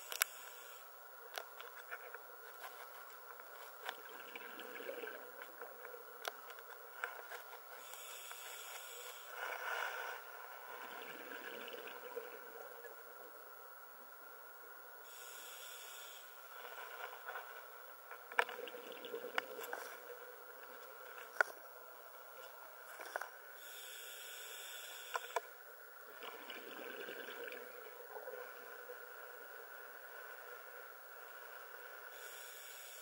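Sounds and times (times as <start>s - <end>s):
bubbly exhaled air: 4.0s - 5.7s, 10.8s - 12.6s, 18.4s - 20.3s, 26.1s - 28.6s
scuba regulator hissing inhalation: 7.8s - 10.2s, 15.1s - 16.4s, 23.6s - 25.4s, 32.1s - 33.0s.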